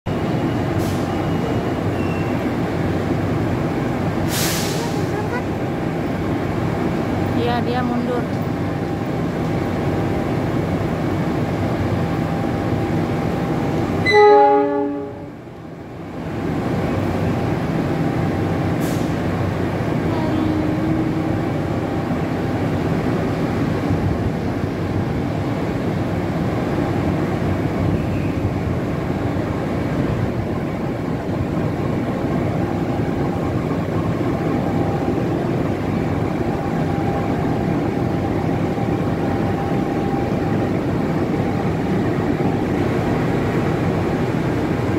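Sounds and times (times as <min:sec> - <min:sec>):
diesel locomotive engine rumbling: 0:00.0 - 0:44.9
locomotive horn blast: 0:14.0 - 0:15.4, 0:20.1 - 0:21.4.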